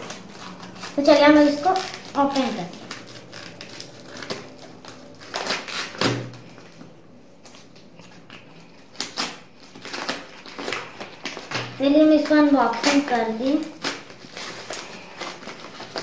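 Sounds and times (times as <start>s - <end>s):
scissors snipping paper: 8.9s - 16.0s.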